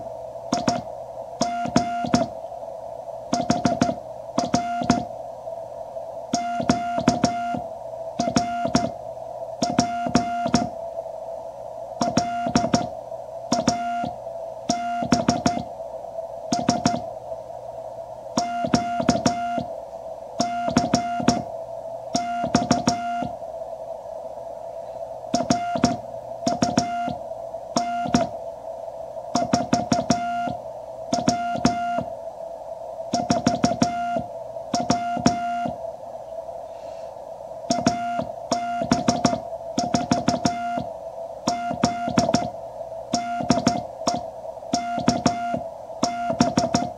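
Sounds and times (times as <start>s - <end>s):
morse code tone: 0.6s - 2.3s, 3.3s - 5.1s, 6.4s - 7.6s, 8.2s - 8.9s, 9.6s - 10.7s, 13.5s - 15.7s, 16.5s - 17.0s, 18.4s - 19.7s, 20.4s - 21.5s, 25.4s - 27.2s, 29.4s - 30.6s, 33.2s - 35.8s, 37.7s - 40.9s, 41.5s - 42.6s, 43.2s - 44.2s, 44.8s - 46.9s.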